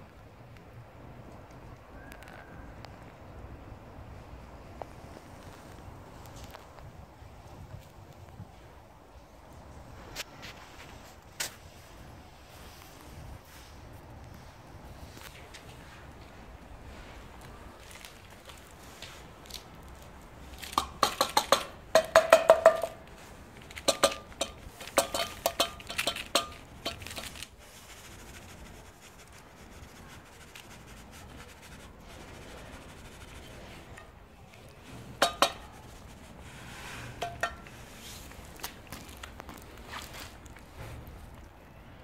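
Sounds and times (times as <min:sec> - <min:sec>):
tin can clinking on concrete: 0:20.6 - 0:27.5, 0:35.2 - 0:35.8, 0:37.2 - 0:37.8.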